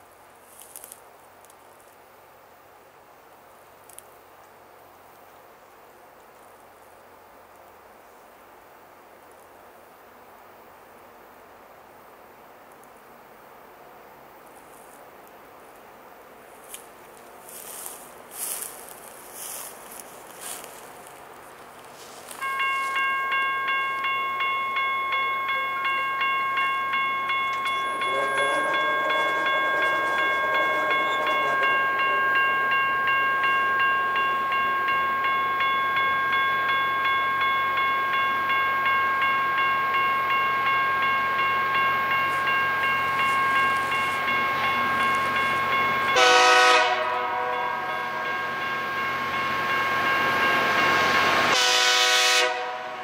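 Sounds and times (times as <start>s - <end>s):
oncoming train noise: 0.0s - 53.0s
crossing bell ringing: 22.0s - 53.0s
distant train horn: 25.0s - 36.3s, 41.9s - 53.0s
loud train horn blast: 27.6s - 33.0s, 46.1s - 48.3s, 51.4s - 53.0s.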